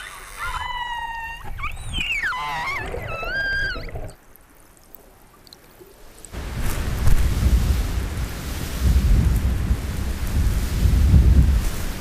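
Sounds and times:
killer whales calling underwater: 0.0s - 4.2s
low murmur of water: 0.0s - 12.0s.

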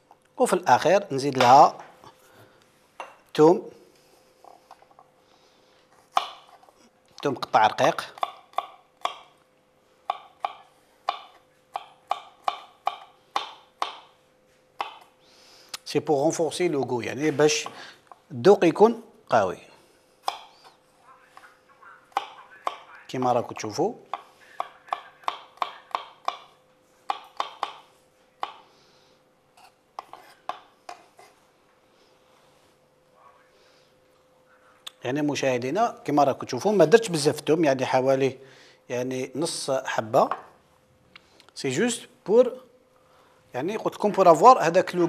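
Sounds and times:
knife chopping on wooden board: 6.1s - 6.6s, 10.1s - 14.1s, 14.8s - 15.1s, 20.2s - 20.5s, 24.1s - 28.6s.

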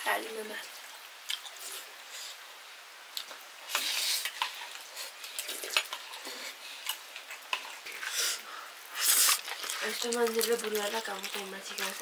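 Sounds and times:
short hiss: 8.1s - 9.4s.

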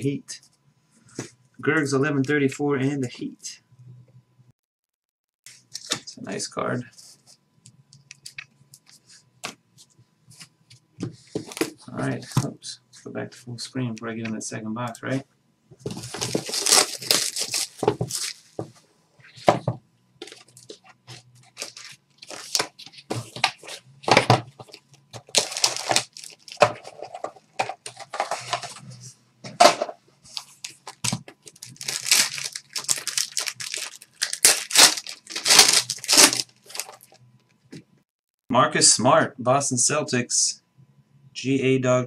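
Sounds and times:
plastic wrap tearing and crinkling: 15.9s - 18.5s, 20.2s - 23.6s, 24.7s - 27.3s, 30.3s - 37.2s.

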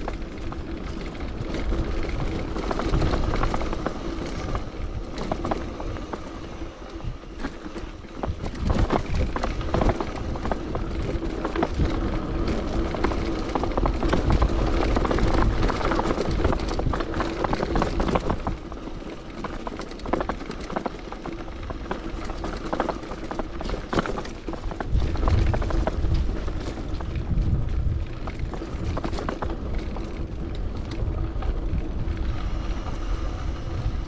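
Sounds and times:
bicycle rattling clicks and knocks: 0.0s - 32.4s
wind rumble on microphone: 0.0s - 34.0s.

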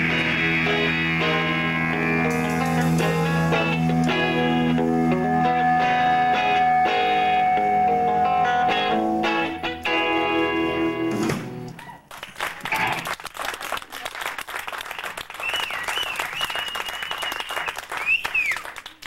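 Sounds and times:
electric guitar chord ringing: 0.0s - 11.7s
long wavering whistle: 15.4s - 18.7s
sharp rising and falling whistle: 15.4s - 18.7s.

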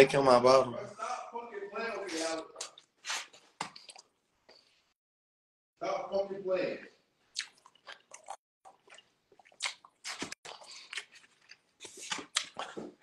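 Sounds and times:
person chewing food: 2.6s - 4.7s, 7.3s - 13.0s.

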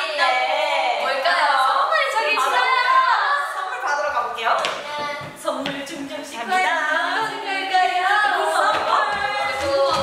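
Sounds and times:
young women singing unaccompanied: 0.0s - 3.8s, 4.6s - 10.0s.

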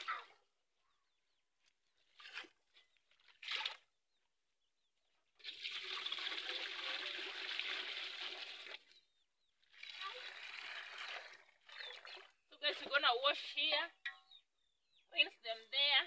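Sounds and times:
water pouring into plastic basin: 2.1s - 3.9s, 5.4s - 9.0s, 9.6s - 12.5s.

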